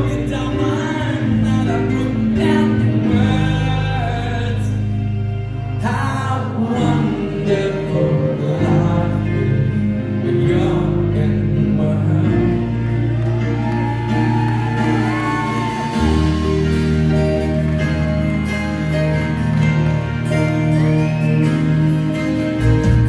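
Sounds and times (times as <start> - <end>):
person singing: 0.0 - 19.4
bass: 0.0 - 23.0
electric guitars: 0.0 - 23.0
grand piano: 0.0 - 23.0
drums: 13.6 - 23.0.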